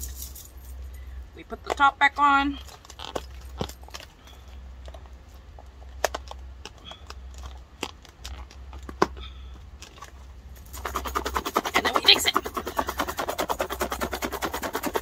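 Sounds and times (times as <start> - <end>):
plastic container shaken rattling: 10.6 - 15.0.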